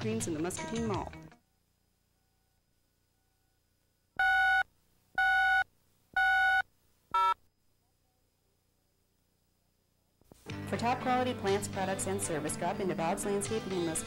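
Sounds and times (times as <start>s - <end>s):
electronic countdown beeps: 4.2s - 4.6s, 5.2s - 5.6s, 6.2s - 6.6s.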